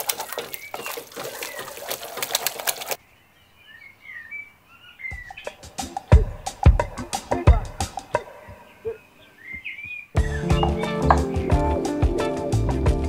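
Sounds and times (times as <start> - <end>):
wet squishing of food being mashed: 0.0 - 3.0
faint bird chirps: 3.0 - 11.0.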